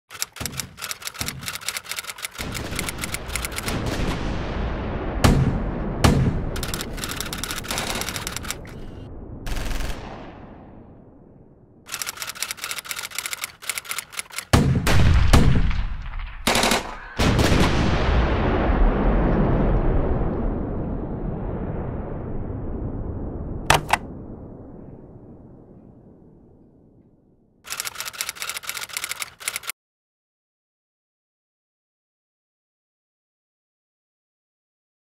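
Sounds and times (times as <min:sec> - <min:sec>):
rapid rattling clicks: 0:00.1 - 0:03.8, 0:06.6 - 0:08.8, 0:11.9 - 0:14.6, 0:27.7 - 0:29.7
heavy booms: 0:03.4 - 0:11.8, 0:17.2 - 0:26.6.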